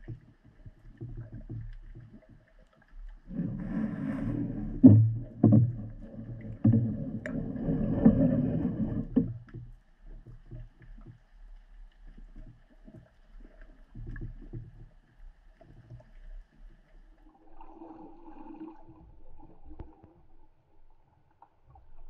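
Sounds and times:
water swishing: 0.0 - 22.0
underwater thumps: 3.3 - 11.2.

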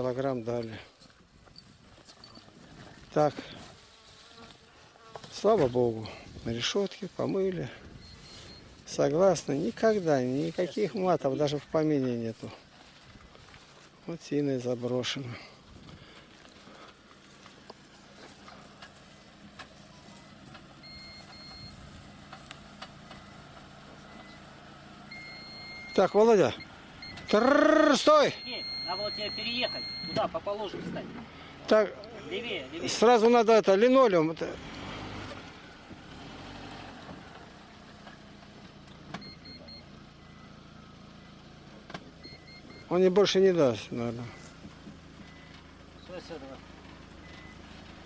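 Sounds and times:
car engine running low: 5.3 - 33.2, 34.3 - 48.0
reversing alarm beeps: 7.9 - 8.7, 20.2 - 21.8, 25.1 - 30.4, 39.2 - 40.6, 42.2 - 42.9, 45.2 - 45.5.

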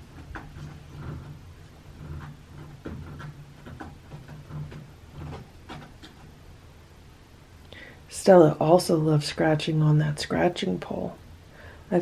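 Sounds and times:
cat claws scratching post: 0.0 - 6.6
low steady hum: 0.0 - 12.0.

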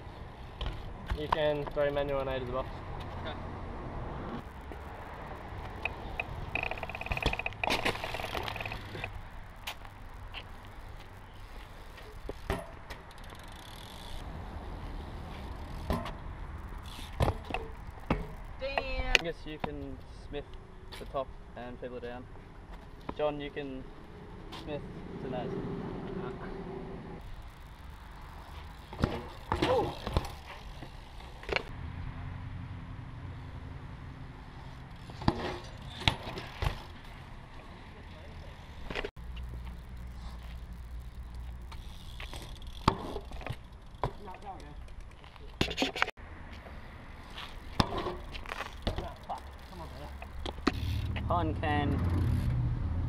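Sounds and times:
bike tyres rolling on concrete: 0.0 - 31.8, 33.3 - 53.0
bike knocking on concrete ledge: 12.2 - 13.0, 15.8 - 16.2, 42.3 - 44.8, 47.7 - 49.4
sharp knocks from bike: 12.2 - 13.0, 15.8 - 16.2, 17.1 - 19.1, 28.9 - 31.7, 35.1 - 36.9, 47.7 - 49.3.

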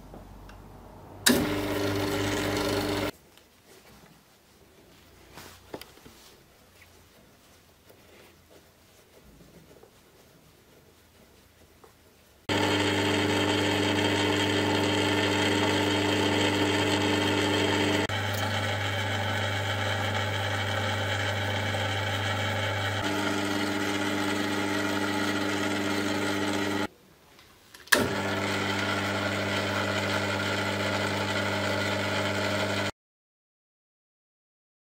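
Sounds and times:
lathe motor humming: 1.3 - 3.1, 12.5 - 26.9, 28.0 - 32.9.

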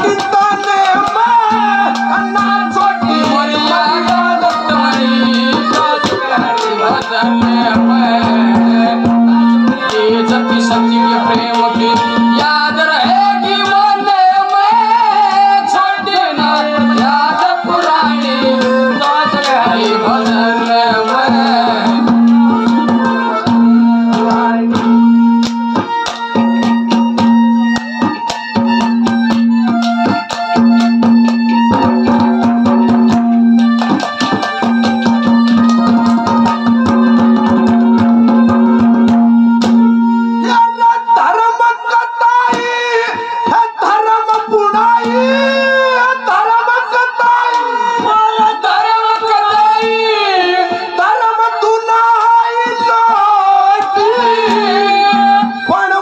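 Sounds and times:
hand drum fast rhythm: 0.0 - 39.9
wavering melody: 0.0 - 41.0.

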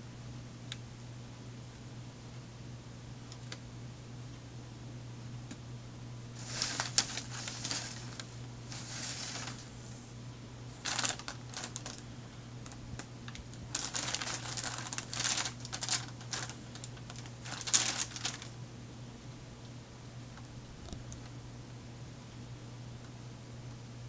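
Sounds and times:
packing paper rustling and crinkling: 6.4 - 10.0, 10.7 - 18.6.

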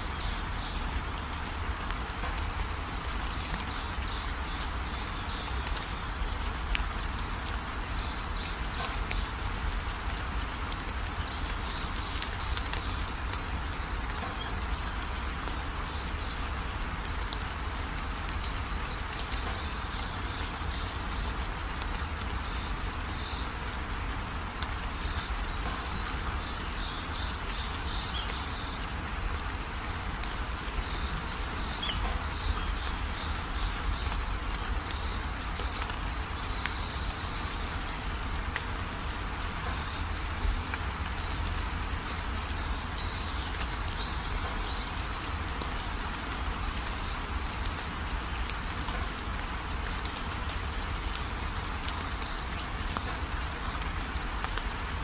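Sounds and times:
vegetables frying in oil: 0.0 - 55.0.

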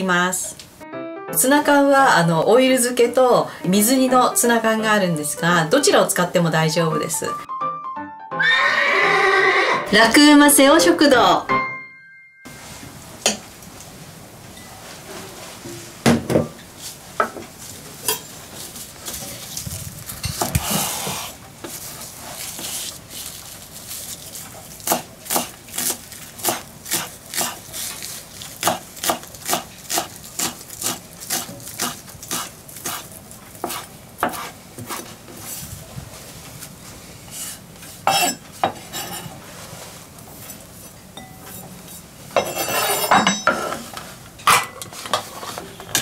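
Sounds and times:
knife slicing on wooden board: 33.6 - 35.1.

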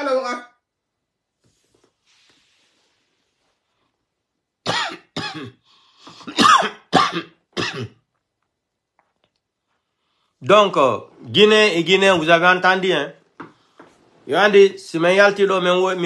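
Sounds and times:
man coughing: 4.6 - 8.0.

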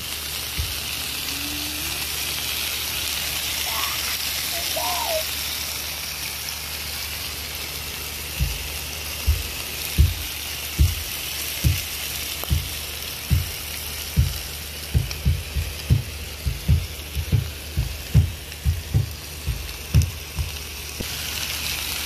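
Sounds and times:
meat sizzling on hot stove: 0.0 - 22.0
low thumps: 8.4 - 20.7.

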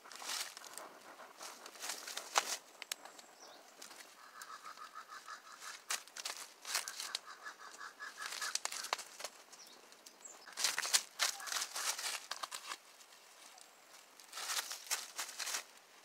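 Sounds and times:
fire crackling and popping: 8.4 - 9.3.

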